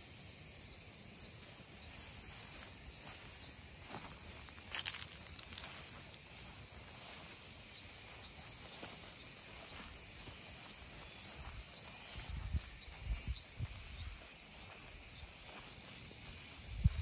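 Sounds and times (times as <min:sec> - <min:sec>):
insects chirping: 0:00.0 - 0:17.0
footsteps on grass: 0:01.3 - 0:17.0.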